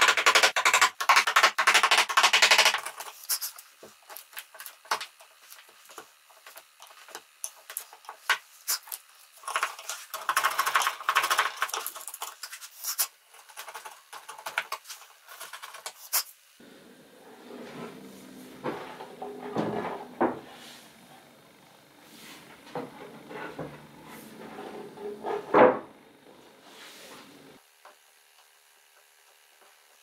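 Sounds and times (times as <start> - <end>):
chisel scraping wood: 22.2 - 26.2.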